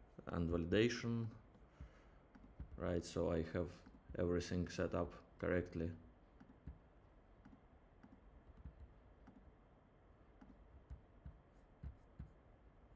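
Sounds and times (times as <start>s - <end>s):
computer mouse clicks: 2.3s - 2.8s, 6.4s - 6.8s, 7.4s - 9.5s, 10.4s - 12.4s.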